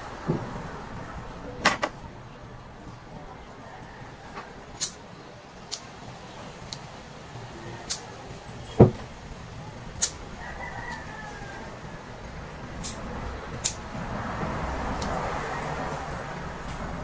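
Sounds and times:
faint rooster crowing: 3.5 - 4.6, 7.4 - 8.2, 10.3 - 12.1.

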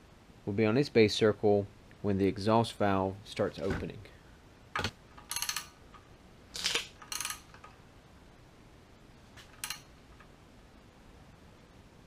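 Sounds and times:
metal tools clinking: 5.2 - 5.8, 6.6 - 7.7, 9.4 - 9.9.

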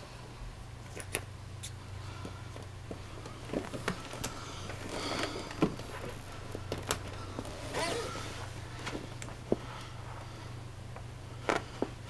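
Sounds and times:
rubber rubbing and scraping: 7.4 - 8.6.

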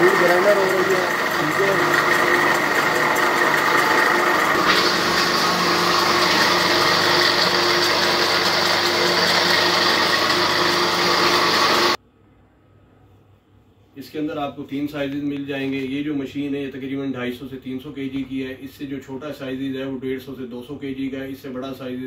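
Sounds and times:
pellet mill whirring: 0.0 - 12.0.

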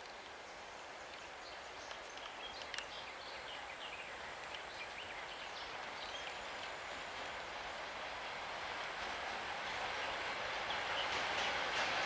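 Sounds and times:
distant freight train rumble: 3.4 - 12.0.

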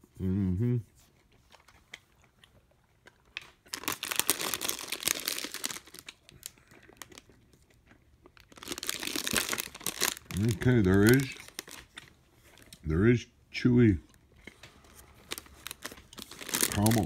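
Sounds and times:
wrapper crinkling: 3.3 - 7.7, 8.3 - 12.8, 14.1 - 17.0.

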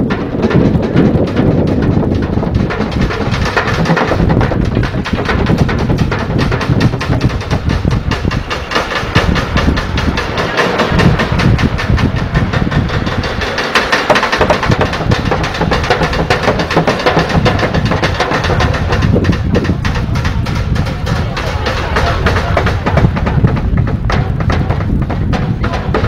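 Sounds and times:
sticks drumming on buckets and pans: 0.0 - 26.0.

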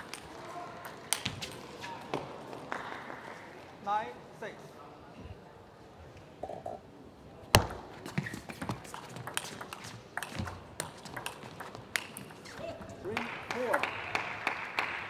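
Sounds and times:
table tennis ball clicking: 8.6 - 12.5.

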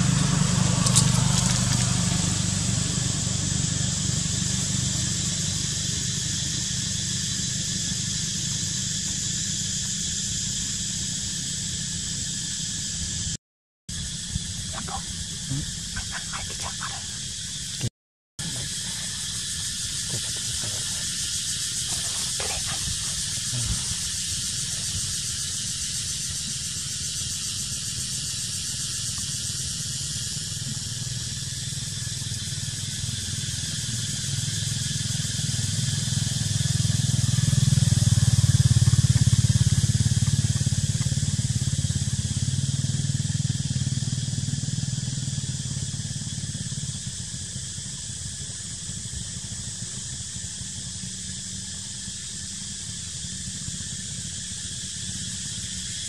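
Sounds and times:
passing vehicle engine rumble: 0.0 - 9.9.

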